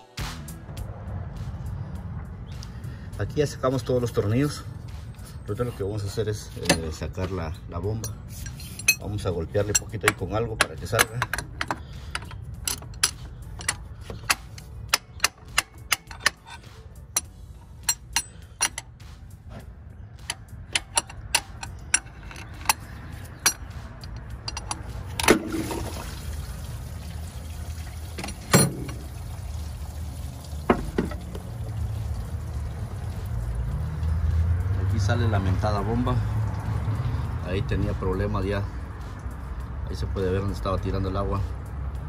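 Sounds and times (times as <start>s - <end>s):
steel bar tapping metal: 8.0s - 18.9s, 20.2s - 25.4s.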